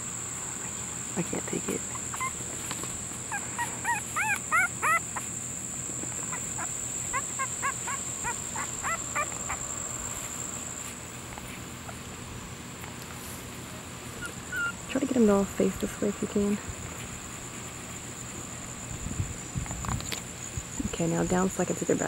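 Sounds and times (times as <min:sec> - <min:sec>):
puppies squeaking and whimpering: 0:01.8 - 0:05.4, 0:06.1 - 0:10.3, 0:14.2 - 0:14.9.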